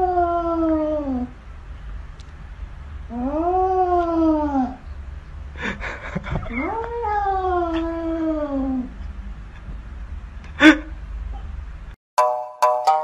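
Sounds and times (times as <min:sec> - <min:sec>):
cat yowling: 0:06.5 - 0:08.9.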